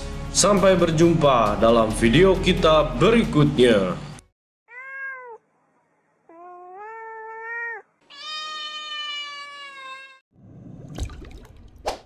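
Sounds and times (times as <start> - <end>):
cat meowing: 4.7 - 5.5, 6.2 - 10.2.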